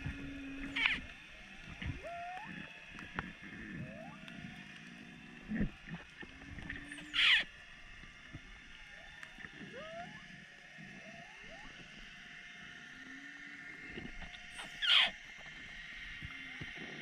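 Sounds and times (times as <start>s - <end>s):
whale song moans: 0.0s - 5.2s, 9.0s - 12.0s
whale high cry: 0.3s - 1.1s, 1.8s - 2.6s, 6.8s - 7.5s, 9.0s - 10.3s, 14.5s - 15.2s.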